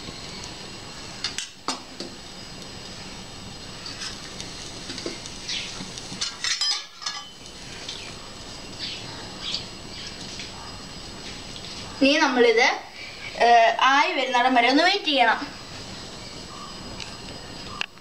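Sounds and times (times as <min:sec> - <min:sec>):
food sizzling in oil: 0:00.0 - 0:12.6.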